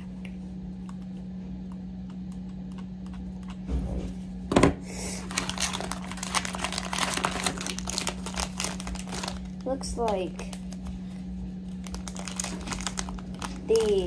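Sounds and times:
plastic packaging crinkling: 5.2s - 14.0s.

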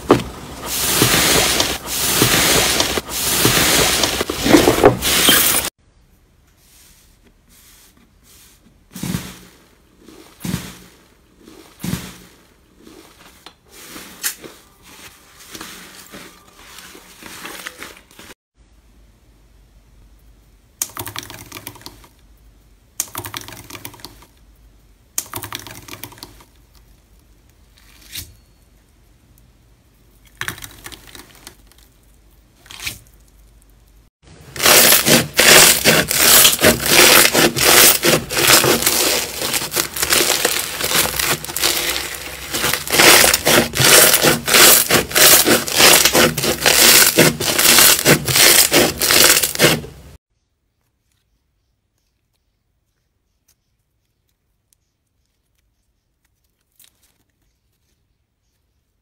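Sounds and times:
foil crinkling: 0.1s - 5.7s, 13.8s - 18.4s, 34.4s - 50.2s, 56.2s - 57.9s
foam slime crackling and popping: 0.1s - 5.8s, 30.6s - 50.2s.

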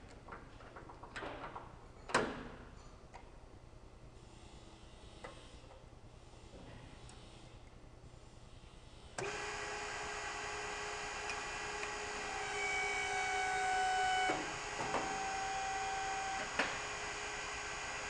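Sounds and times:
hydraulic power unit humming: 9.2s - 18.0s.

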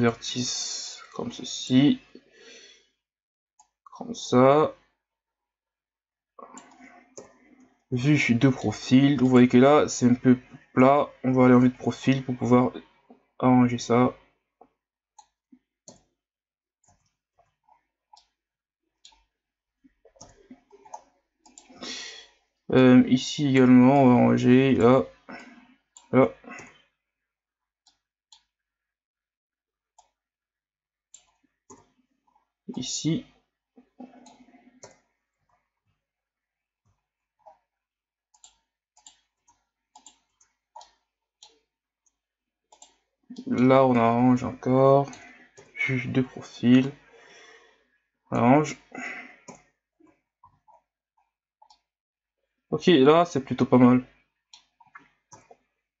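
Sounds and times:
computer mouse and keyboard clicks: 6.4s - 7.8s, 15.2s - 16.1s, 16.8s - 18.4s, 19.0s - 21.9s, 31.1s - 35.6s, 38.3s - 43.7s, 48.7s - 49.8s, 51.6s - 51.9s, 54.6s - 55.7s
mouse and keyboard clicks: 20.2s - 21.8s, 38.4s - 41.6s, 42.7s - 43.6s.

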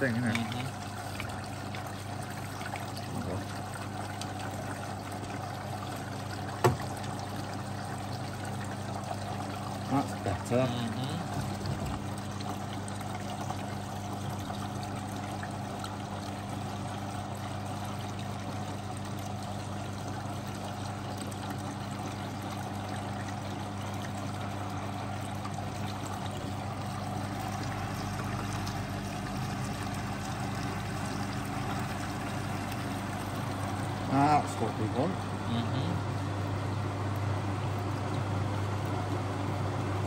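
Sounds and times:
washing machine low hum: 0.0s - 40.0s
water running into machine: 0.0s - 40.0s.

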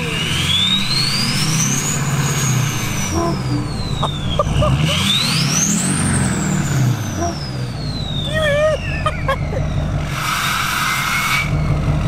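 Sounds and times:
diesel engine revving: 0.0s - 12.0s
turbo whistling spool: 7.0s - 11.8s.

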